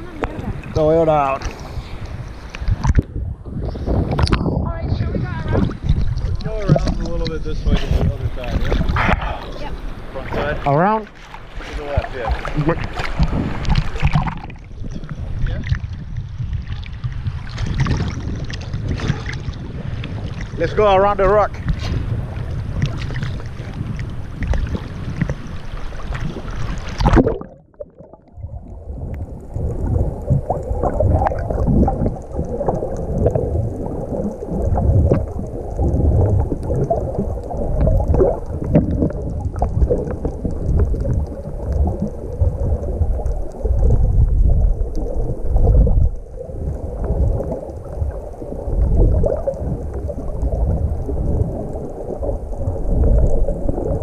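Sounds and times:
crackles and knocks: 0.0 - 10.1, 11.1 - 54.0
muffled underwater rumble: 0.0 - 54.0
water sloshing: 0.0 - 54.0
wind on microphone: 0.0 - 54.0
splash: 5.4 - 14.7, 16.6 - 20.6, 21.6 - 28.1.

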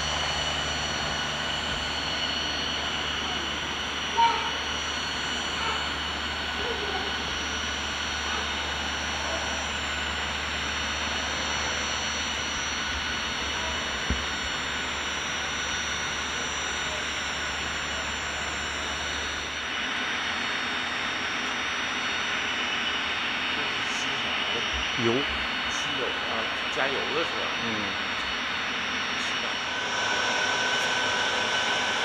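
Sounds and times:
low hum: 0.0 - 20.5
jet engines running: 0.0 - 32.0.

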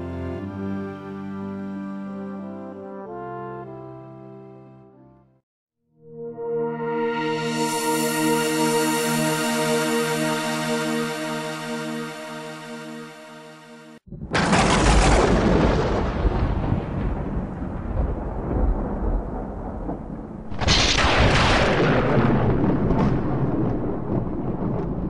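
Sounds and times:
closing music: 6.1 - 14.0
loud rumbling crashes: 14.1 - 25.0.

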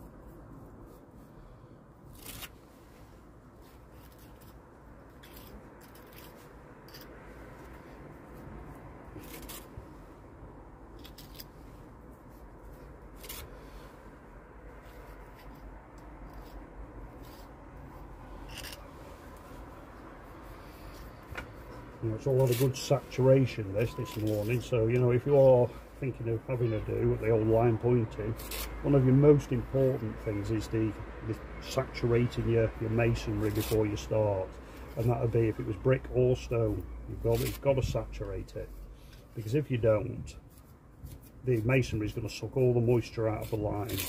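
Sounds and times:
hand tool scraping mortar: 5.2 - 7.2, 18.4 - 18.9, 22.1 - 29.5, 37.2 - 38.0, 41.1 - 44.0.

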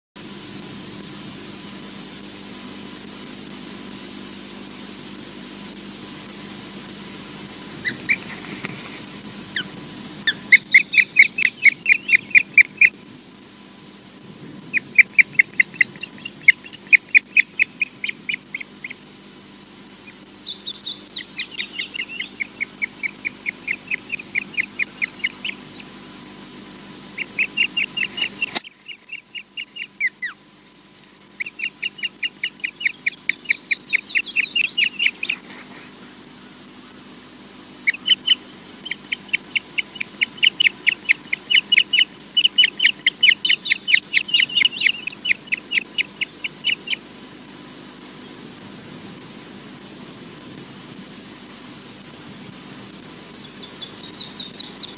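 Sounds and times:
higher sliding bird notes: 7.7 - 13.0, 14.7 - 26.1, 31.2 - 47.1
ospreys piping whistles: 9.6 - 13.0, 14.7 - 19.1, 19.7 - 25.9, 27.1 - 30.4, 31.3 - 35.4, 37.8 - 47.1, 53.4 - 54.9.

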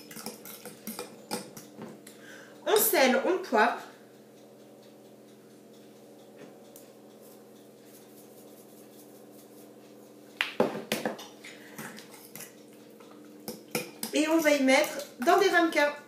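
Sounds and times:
utensil clinking on glass bowl: 0.0 - 1.6
low steady hum: 0.0 - 16.0.

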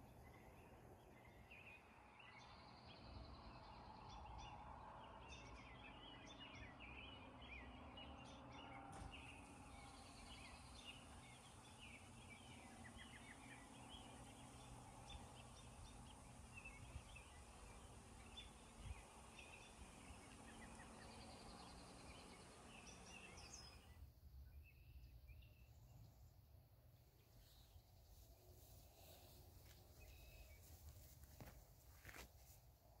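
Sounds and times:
birds chirping and trilling: 0.0 - 26.1
low background noise: 0.0 - 33.0.

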